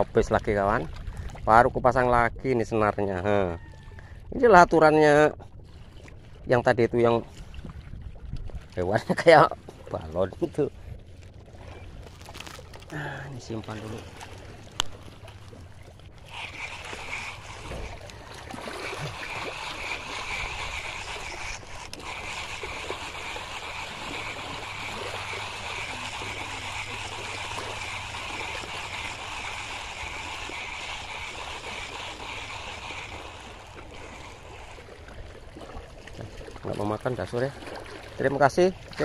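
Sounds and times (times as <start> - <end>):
sea water washing against rocks: 12.1 - 39.0.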